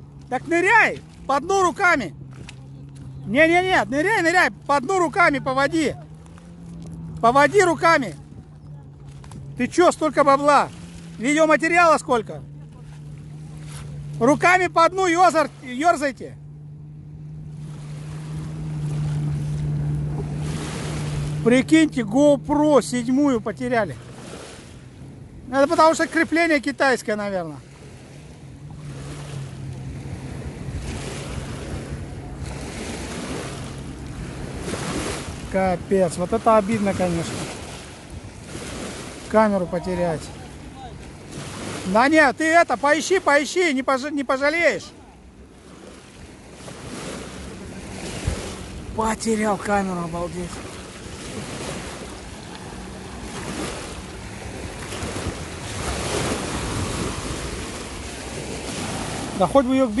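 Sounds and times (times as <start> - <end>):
distant boat engine drone: 0.0 - 60.0
river water lapping at shore: 0.0 - 60.0
wind buffeting microphone: 0.7 - 11.7, 27.3 - 42.0, 45.2 - 60.0.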